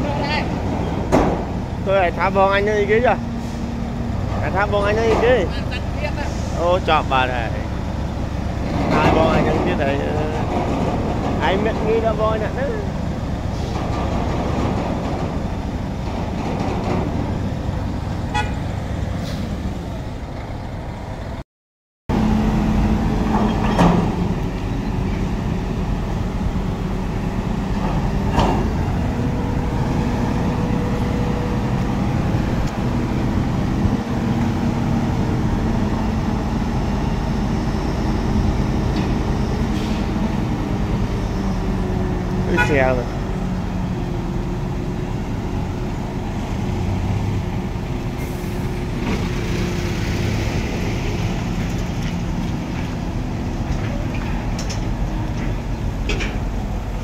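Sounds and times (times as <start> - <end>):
diesel truck engines running: 0.0 - 21.4, 22.1 - 57.0
truck horn toots: 18.3 - 18.7, 42.5 - 43.0.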